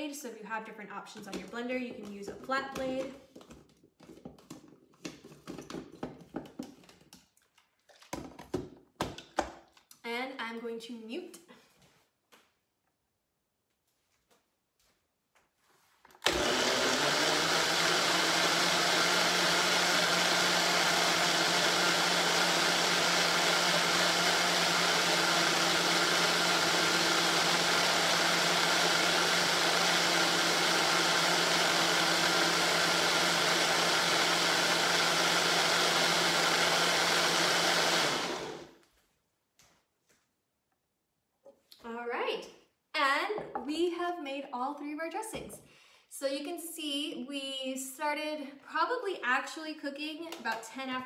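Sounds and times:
blender running: 0:16.2 - 0:38.8.

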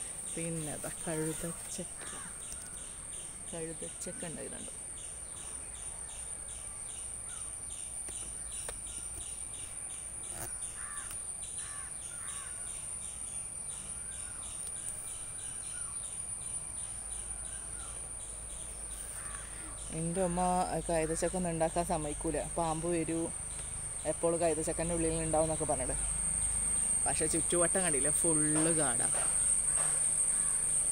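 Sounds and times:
bird calling: 0:00.0 - 0:04.7, 0:10.2 - 0:12.7, 0:18.9 - 0:21.3
insects droning: 0:00.0 - 0:30.9
pulsing insect chirp: 0:00.0 - 0:30.9.

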